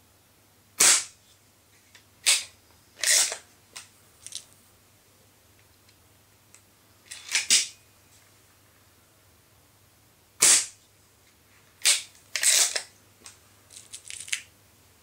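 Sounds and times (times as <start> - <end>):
air pistol firing: 0.8 - 1.2, 10.4 - 10.8.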